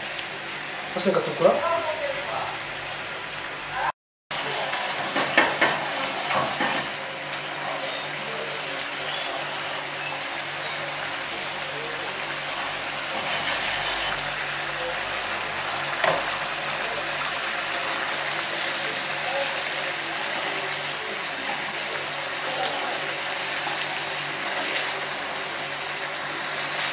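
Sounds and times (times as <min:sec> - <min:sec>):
food sizzling in a frying pan: 0:00.0 - 0:26.9.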